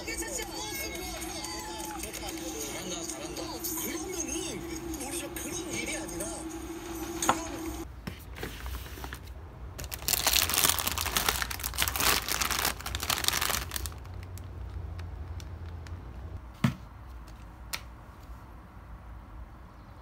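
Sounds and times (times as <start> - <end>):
packaging crinkling and rustling: 8.3 - 16.0.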